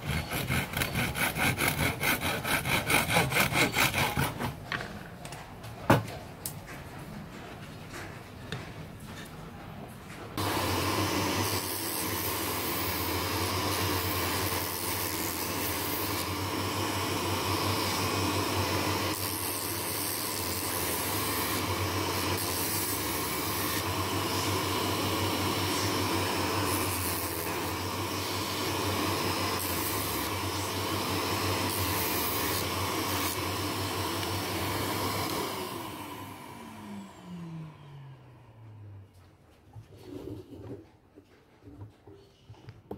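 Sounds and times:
wood against sanding drum: 0.0 - 4.6
spindle sander running: 10.4 - 38.9.

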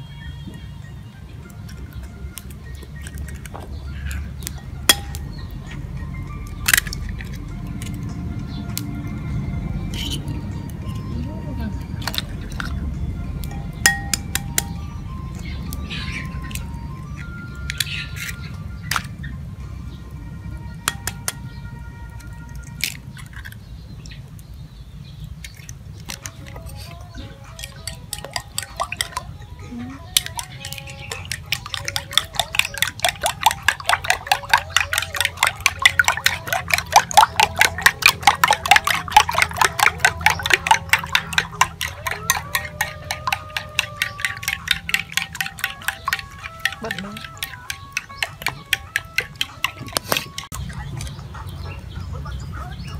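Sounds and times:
spoon beating eggs in bowl: 1.5 - 5.8, 12.0 - 12.8, 13.4 - 14.8, 20.8 - 21.4, 25.3 - 51.2
eggs cracked into bowl: 2.4 - 5.4, 6.5 - 8.1, 12.0 - 12.8, 13.5 - 14.8, 16.4 - 19.2, 20.8 - 21.5, 22.5 - 23.6, 25.3 - 29.4, 30.0 - 51.2.

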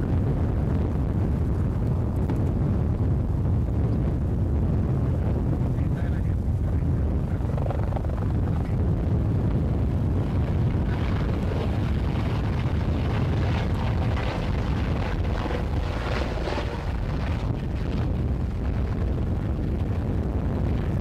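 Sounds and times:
high whirring rush: 0.0 - 21.0
helicopter rotor thrum: 7.3 - 8.8, 10.2 - 19.2.

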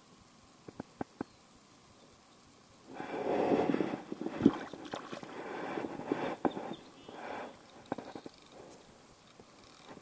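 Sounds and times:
water sloshing and gurgling: 3.1 - 6.7.

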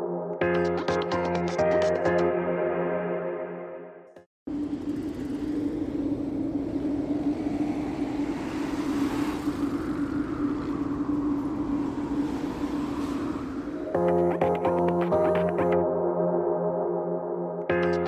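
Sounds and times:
distant traffic rumble: 4.5 - 14.2.

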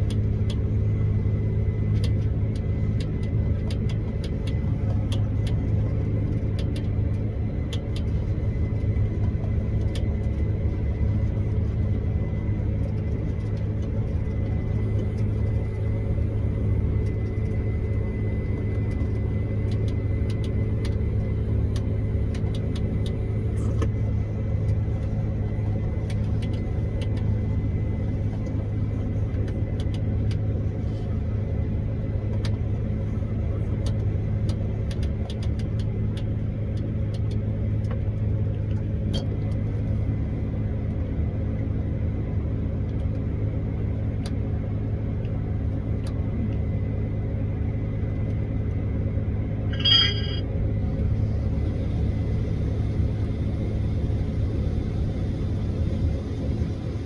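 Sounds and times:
combine harvester drone: 0.0 - 57.0
high whine: 49.7 - 50.5.

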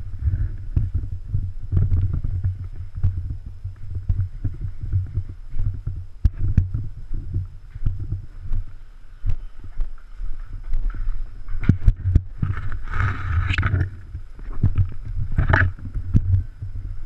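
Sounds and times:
footsteps on rubble: 3.8 - 16.1.

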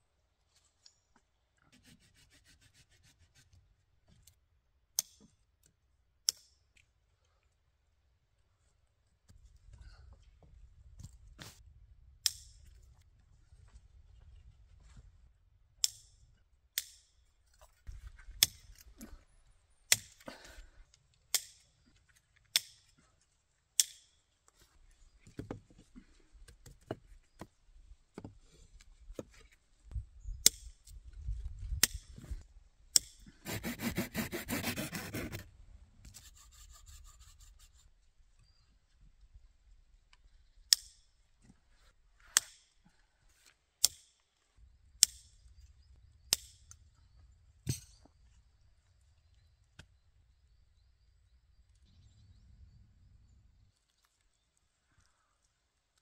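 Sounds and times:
rasping scrape: 33.4 - 35.5.

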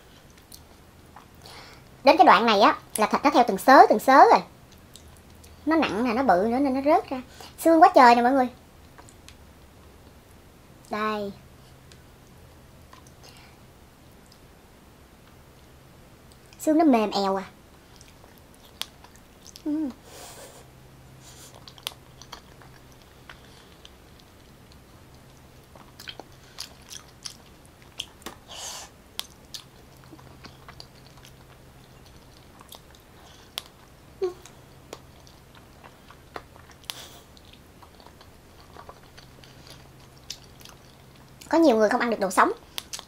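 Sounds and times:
chewing: 4.7 - 5.6, 17.8 - 19.7, 21.3 - 28.5, 29.2 - 41.5, 42.6 - 43.0
mouth smacks and clicks: 42.7 - 43.0.

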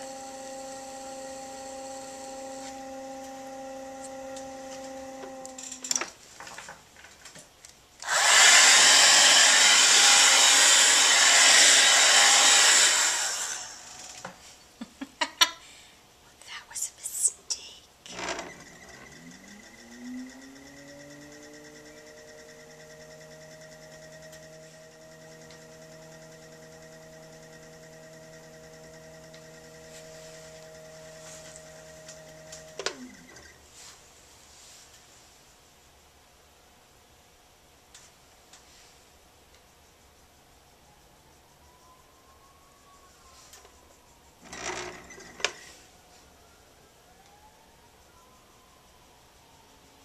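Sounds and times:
blow dryer blowing: 0.0 - 6.0, 8.0 - 14.4, 18.1 - 33.6
potter's wheel motor humming: 0.0 - 6.2, 8.0 - 14.4, 18.1 - 33.7, 44.4 - 45.8.

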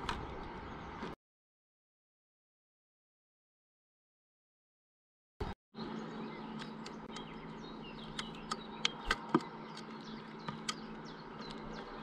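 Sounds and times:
faint bird chirps: 5.8 - 12.0
steady low hum: 5.8 - 12.0
bird ticking and tapping on feeder: 8.0 - 11.8.

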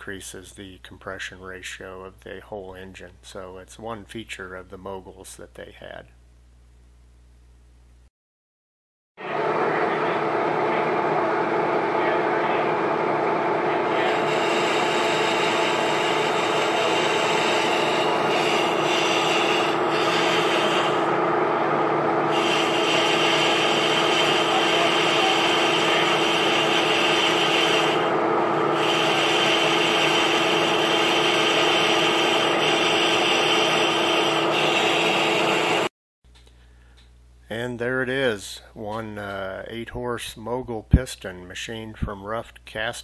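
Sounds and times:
metal lathe drone: 9.2 - 35.9
hissing cutting noise: 13.7 - 21.2, 22.2 - 35.9.

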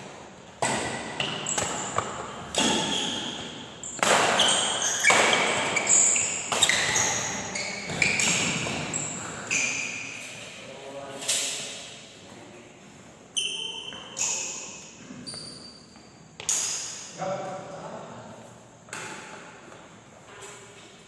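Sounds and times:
rackets hitting shuttlecock: 0.6 - 10.2, 18.9 - 19.8
shoes squeaking on court floor: 0.6 - 10.6, 13.2 - 17.1.

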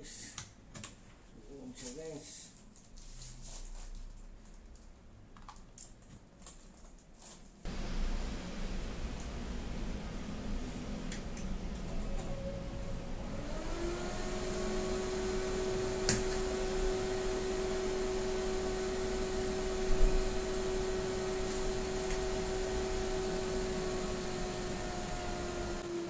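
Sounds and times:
computer cooling fan whine: 7.7 - 26.0.

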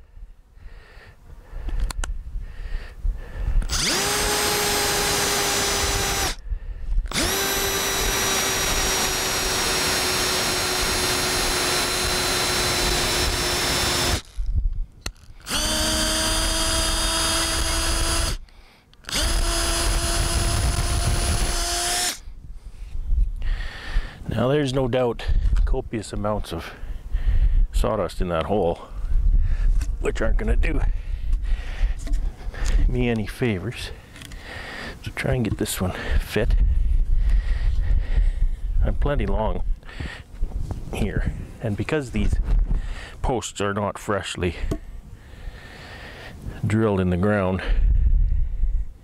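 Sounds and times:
cordless drill boring into wood: 3.6 - 6.4, 7.0 - 22.2.

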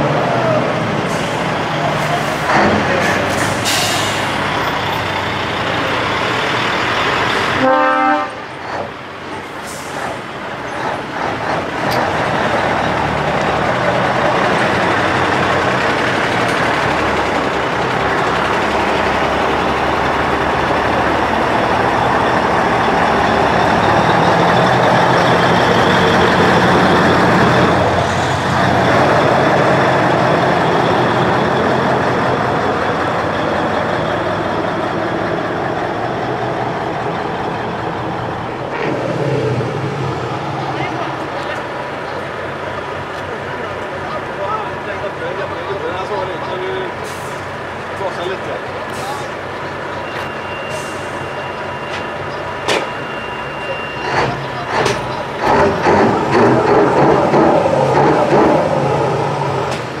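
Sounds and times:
diesel truck engine running loudly: 0.0 - 60.0
truck horn blast: 7.6 - 8.5.

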